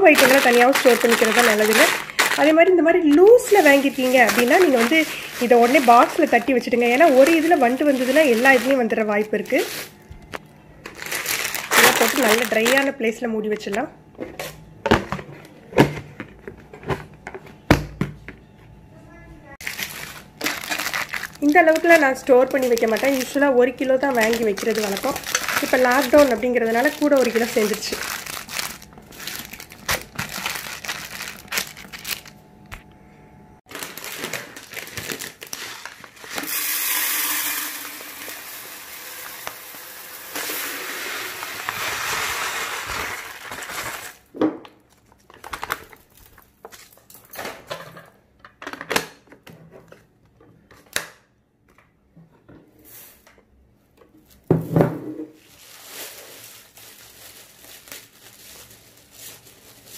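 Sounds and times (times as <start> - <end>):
plastic packets rustling: 0.0 - 13.8, 19.6 - 32.7, 33.7 - 36.6, 37.9 - 47.3, 55.4 - 59.9
rice pouring into plastic box: 36.2 - 44.1.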